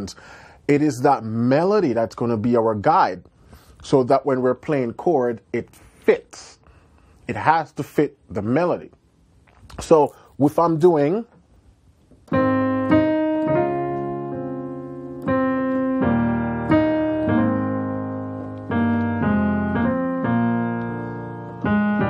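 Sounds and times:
piano chords ringing: 0:12.3 - 0:22.0.

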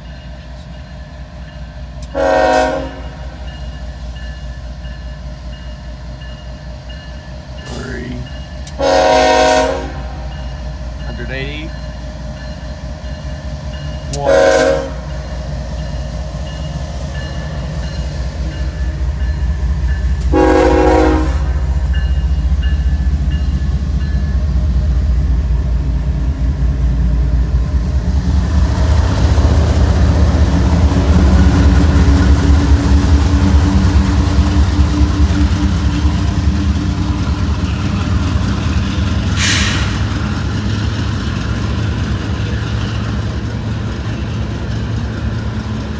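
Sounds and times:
locomotive engines rumbling: 0:00.0 - 0:45.9
train air horn blasts: 0:02.1 - 0:03.4, 0:08.8 - 0:10.3, 0:14.1 - 0:15.2, 0:20.3 - 0:21.7.

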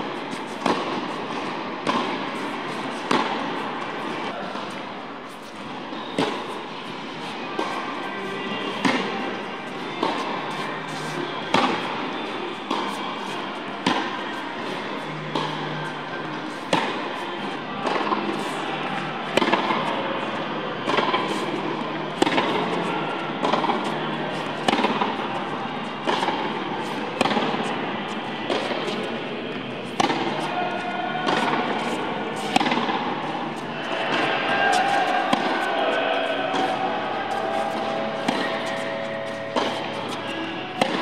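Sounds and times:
tennis ball hit by racket: 0:00.3 - 0:04.7, 0:08.7 - 0:21.5, 0:22.1 - 0:41.0.

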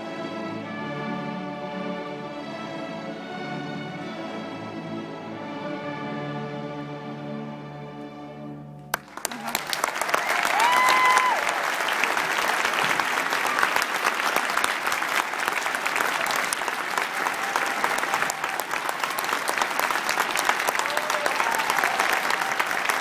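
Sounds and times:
crowd applauding: 0:08.9 - 0:23.0
faint short cheers: 0:09.3 - 0:11.8, 0:20.8 - 0:23.0.

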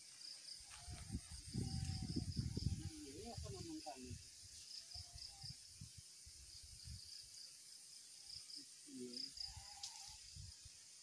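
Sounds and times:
faint insect buzz: 0:00.0 - 0:11.0.

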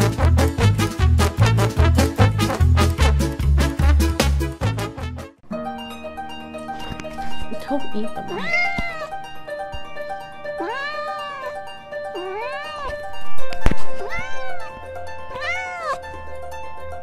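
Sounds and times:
background music: 0:00.0 - 0:17.0
cat meowing: 0:08.2 - 0:09.2, 0:10.6 - 0:13.1, 0:13.9 - 0:16.0.

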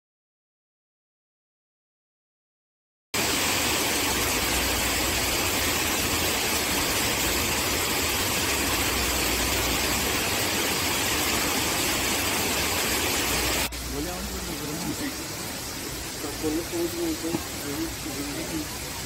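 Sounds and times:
waterfall rushing: 0:03.2 - 0:19.0.

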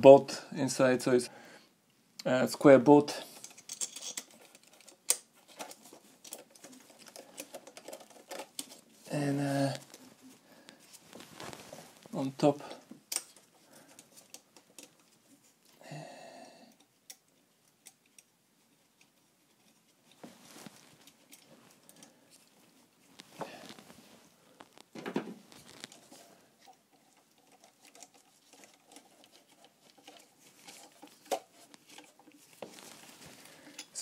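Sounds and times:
hands rustling against foil: 0:03.3 - 0:15.8, 0:19.4 - 0:34.0
small metal clicks: 0:13.1 - 0:15.0.

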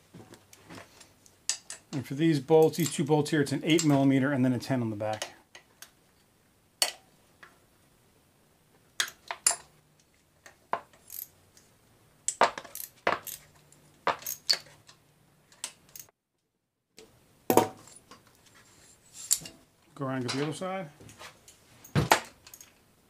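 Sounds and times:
wrench clinking on metal bolts: 0:22.0 - 0:22.8.

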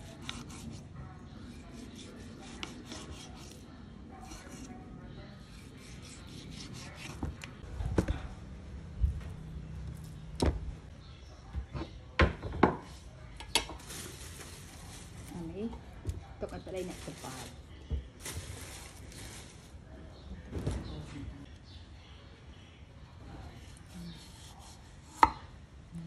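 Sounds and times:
knife slicing meat on board: 0:01.6 - 0:03.6, 0:05.5 - 0:07.5.

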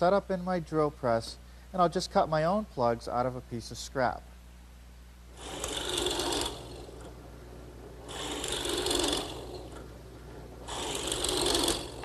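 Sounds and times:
drill press motor hum: 0:05.3 - 0:12.0
plug cutter boring into wood: 0:05.4 - 0:07.2, 0:08.0 - 0:09.9, 0:10.6 - 0:12.0.

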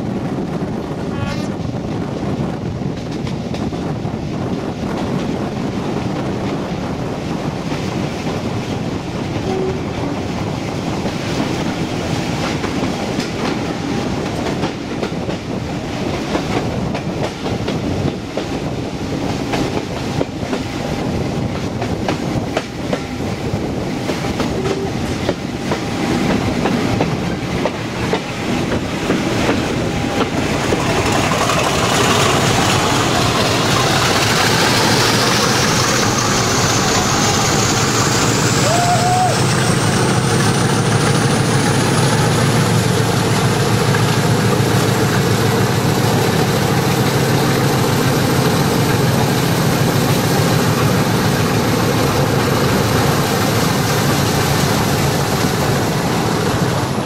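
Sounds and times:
diesel locomotives hauling train: 0:00.0 - 0:57.0
wheels clicking over rail joints: 0:24.4 - 0:37.7.

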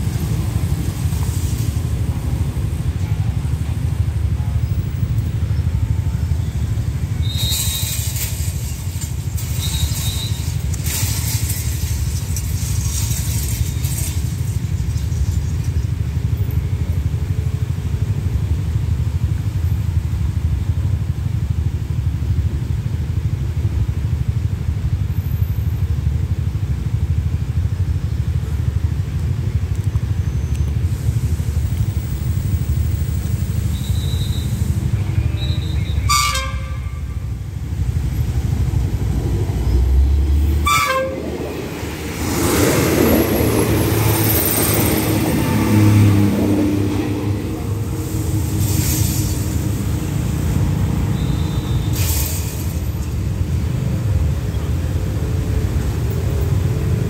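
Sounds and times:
motorcycles idling: 0:00.0 - 0:57.0
road traffic: 0:00.0 - 0:57.0
hissing noise: 0:06.6 - 0:15.6, 0:37.0 - 0:53.7.

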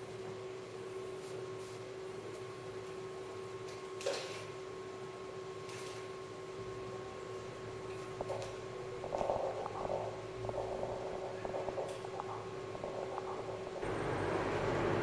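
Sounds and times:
crackling electronic hum: 0:00.0 - 0:15.0
hiss and rumble: 0:07.0 - 0:15.0.

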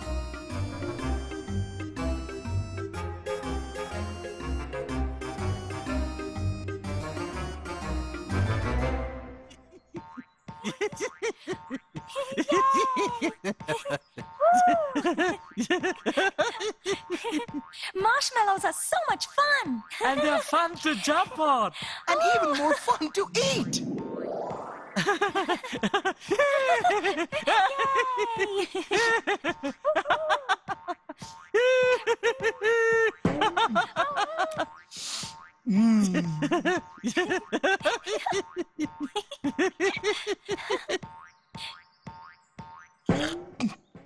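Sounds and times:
cartoon characters laughing: 0:09.6 - 0:17.7, 0:19.8 - 0:21.4, 0:22.1 - 0:23.7, 0:24.9 - 0:34.9, 0:35.8 - 0:41.2.

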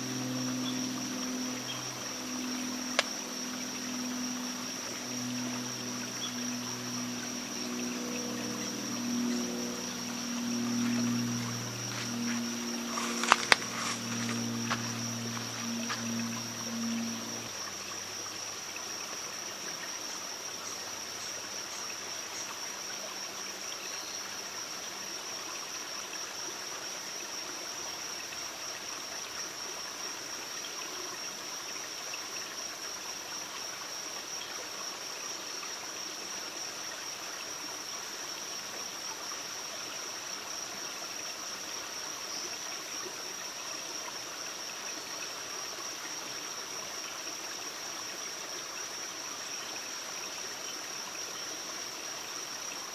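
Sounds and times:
running water rushing: 0:00.0 - 0:20.4.

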